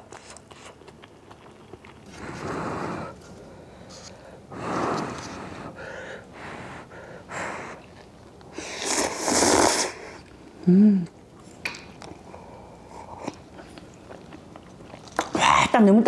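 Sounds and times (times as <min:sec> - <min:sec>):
slurping broth: 0:02.0 - 0:03.3, 0:08.5 - 0:10.3
breath blowing on noodles: 0:08.5 - 0:10.2
person humming: 0:10.6 - 0:11.2.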